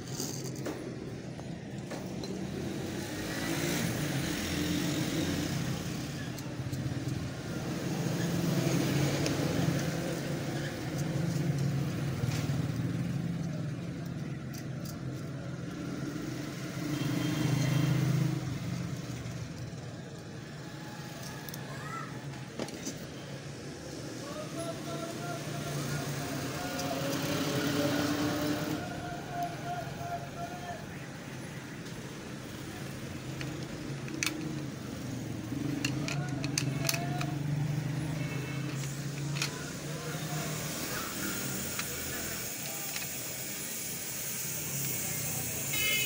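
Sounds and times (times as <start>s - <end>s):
small screws and plastic parts clicking: 0.0s - 15.7s, 17.6s - 21.7s, 26.5s - 28.6s, 31.8s - 45.0s
road traffic engines rumbling: 0.0s - 46.0s.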